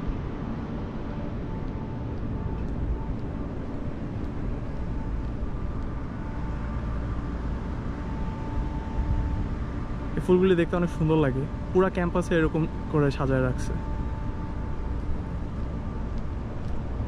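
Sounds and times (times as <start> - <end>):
faint thin whine: 0.0 - 17.0
low street rumble: 0.0 - 17.0.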